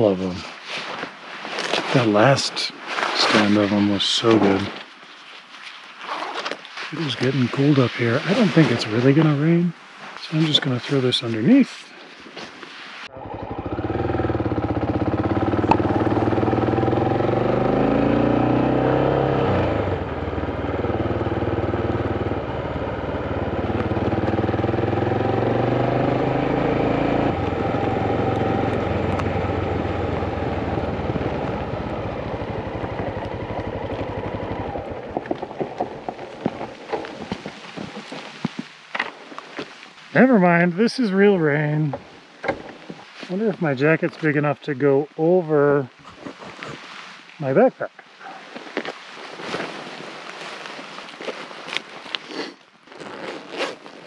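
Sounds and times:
motorcycle engine accelerating: 13.1s - 38.2s.

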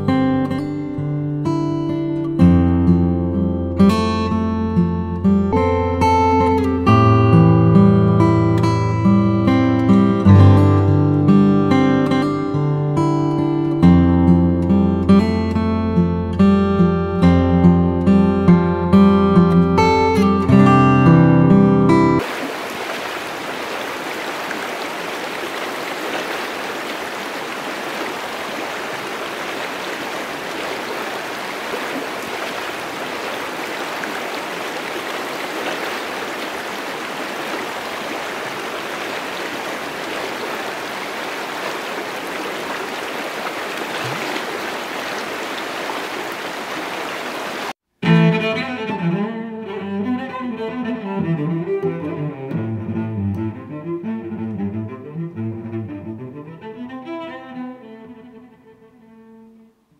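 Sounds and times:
bowed strings music: 0.3s - 22.2s, 48.0s - 59.8s
creek rushing over rocks: 22.2s - 47.8s.

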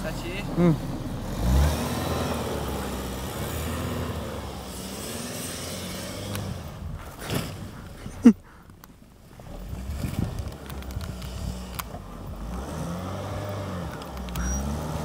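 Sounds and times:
car engine revving: 0.0s - 15.0s
wheels spinning on snow: 1.0s - 8.4s, 9.2s - 15.0s.

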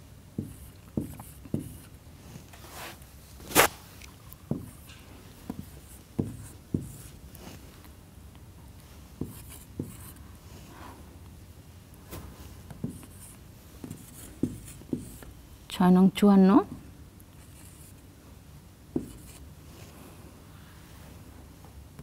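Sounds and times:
marker tapping whiteboard: 0.4s - 1.8s, 4.5s - 4.9s, 5.5s - 7.1s, 9.2s - 10.1s, 12.8s - 15.3s, 19.0s - 19.4s.

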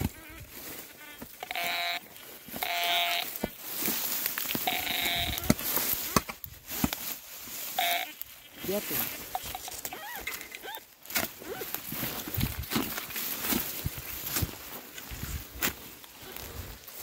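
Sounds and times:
metal detector buzzing tones: 0.0s - 6.2s, 7.5s - 10.8s
dry grass rustling: 0.0s - 17.0s.

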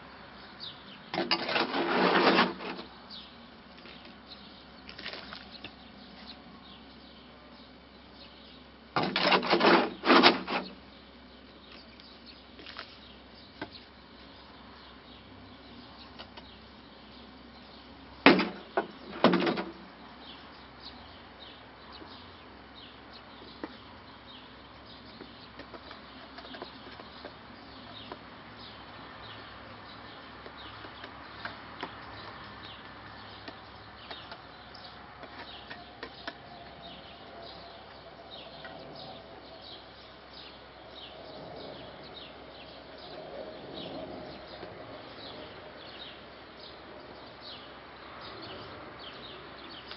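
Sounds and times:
small birds chirping: 0.0s - 49.9s
clatter of sharp wooden knocks: 1.1s - 2.9s, 9.0s - 10.8s, 18.2s - 19.8s, 25.2s - 27.4s.

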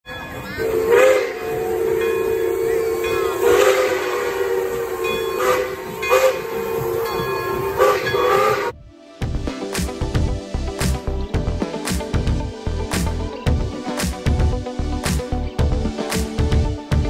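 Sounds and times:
steam hissing: 0.6s - 8.7s
steam locomotive whistle: 0.6s - 8.8s.

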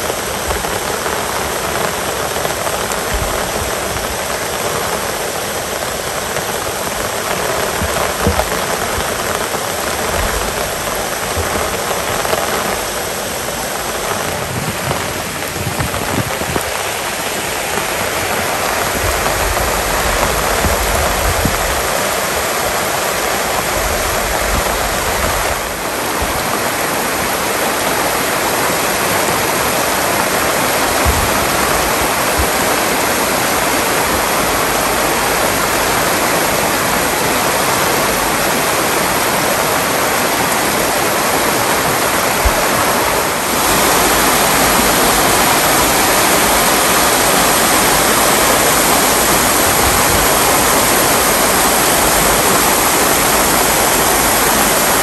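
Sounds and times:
river rushing: 0.0s - 55.0s.

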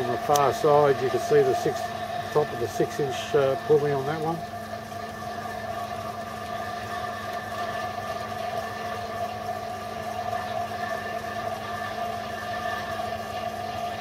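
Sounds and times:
milling machine humming: 0.0s - 14.0s.

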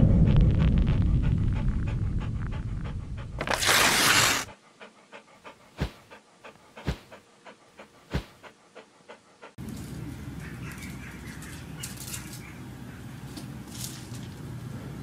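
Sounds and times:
low rumble: 0.0s - 3.4s
dog panting: 0.9s - 3.5s, 4.1s - 9.6s.

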